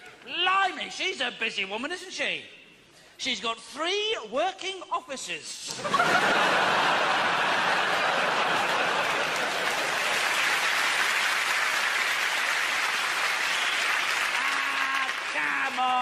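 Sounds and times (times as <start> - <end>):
audience laughing: 5.7 - 10.2
audience applauding: 6.0 - 16.0.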